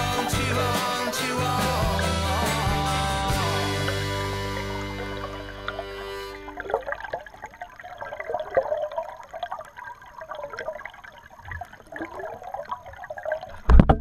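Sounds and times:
creek water bubbling underwater: 0:03.4 - 0:14.0.

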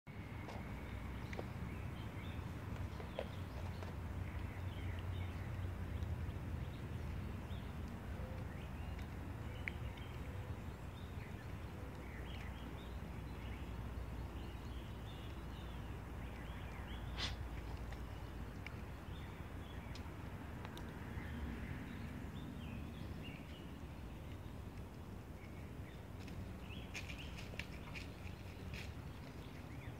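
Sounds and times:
small birds chirping: 0:00.1 - 0:29.9
steady low rumble: 0:00.1 - 0:29.9.

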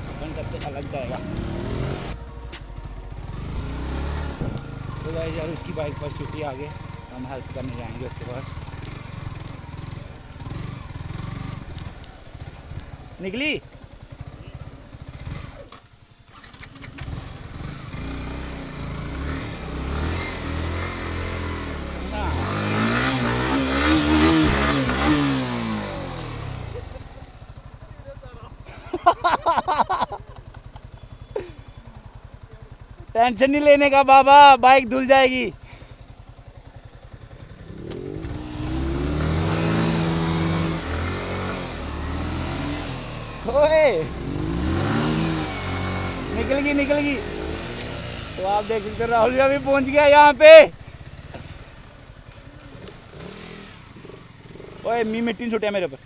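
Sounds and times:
motorcycle engine: 0:00.0 - 0:56.0.

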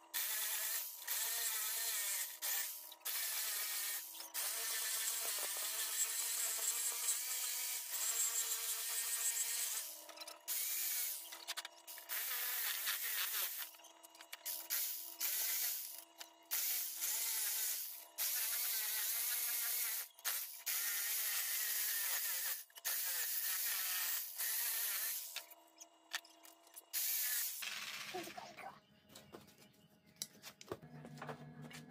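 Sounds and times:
jigsaw cutting wood: 0:00.1 - 0:25.4.

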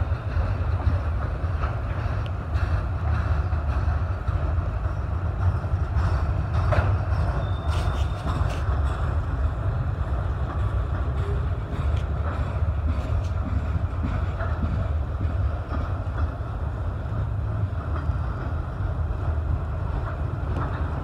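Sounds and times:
train wheels rumbling on rail: 0:00.0 - 0:21.0
wheels clicking over rail joints: 0:00.0 - 0:21.0
faint high squeal: 0:07.3 - 0:08.5.

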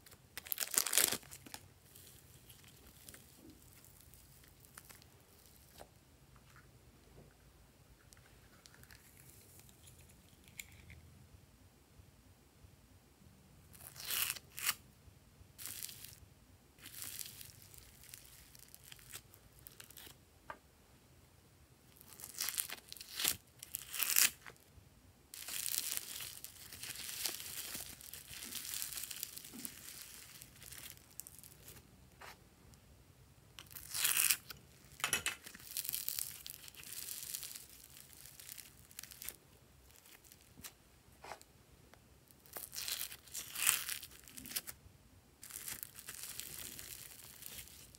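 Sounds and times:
crunchy crackling slime: 0:00.0 - 0:05.9, 0:13.7 - 0:14.8, 0:15.6 - 0:16.2, 0:16.8 - 0:20.2, 0:21.9 - 0:24.6, 0:25.3 - 0:32.4, 0:33.6 - 0:40.8, 0:42.3 - 0:44.8, 0:45.4 - 0:47.9.

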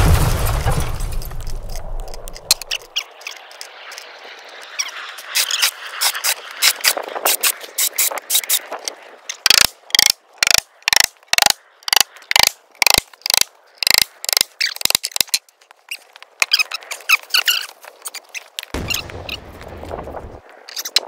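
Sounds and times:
reel ratchet clicking: 0:09.3 - 0:15.4.

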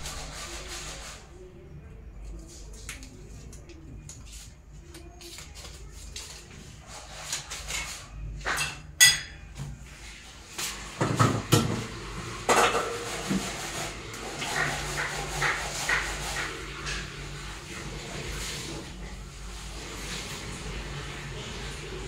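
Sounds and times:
dishes and cutlery clattering: 0:07.4 - 0:09.6, 0:12.5 - 0:13.3.

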